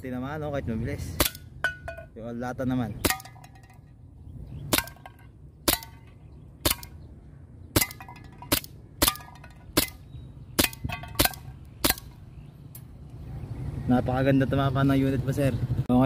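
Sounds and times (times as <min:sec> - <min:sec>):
airsoft pistol shots: 0:04.7 - 0:07.0, 0:07.7 - 0:10.0, 0:10.6 - 0:12.2.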